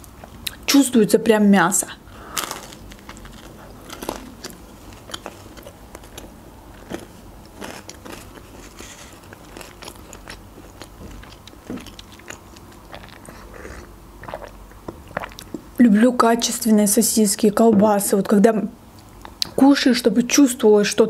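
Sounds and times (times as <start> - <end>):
biting and chewing pizza: 2.2 - 15.6.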